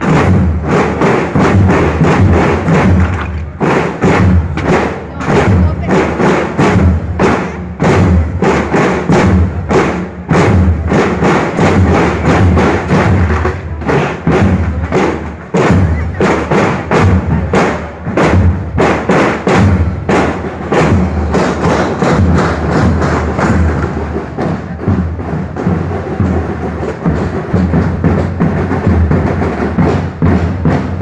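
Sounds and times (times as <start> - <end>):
deep drum strokes: 0.0 - 31.0
marching drums playing: 0.0 - 31.0.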